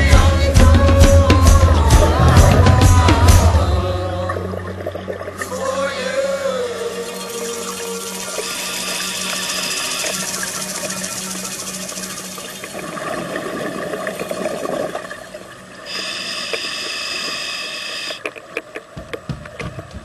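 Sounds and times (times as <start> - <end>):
regulator breathing hiss: 7.2 - 12.4, 15.8 - 18.2.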